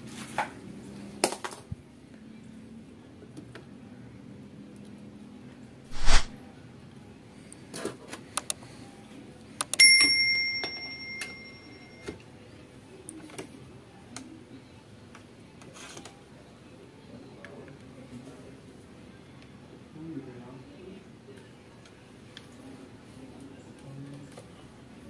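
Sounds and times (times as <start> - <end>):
short rushing burst: 5.9 - 6.4
bell ding: 9.8 - 12.2.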